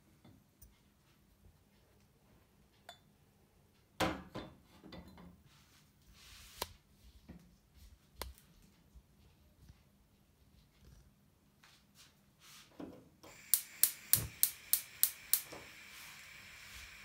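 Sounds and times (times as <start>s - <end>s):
brief gas hiss: 13.2s - 17.0s
sharp clicks: 13.3s - 17.0s.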